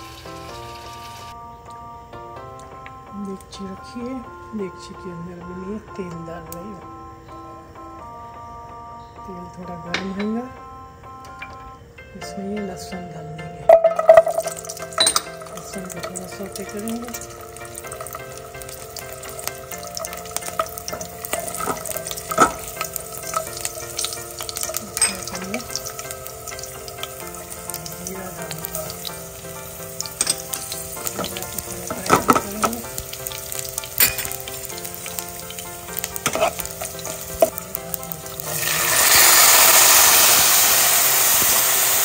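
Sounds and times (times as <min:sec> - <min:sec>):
garlic sizzling in hot oil: 0:00.0 - 0:01.4, 0:13.7 - 0:42.0
spoon scraping a pan: 0:13.8 - 0:27.9, 0:30.0 - 0:35.0, 0:35.9 - 0:40.6.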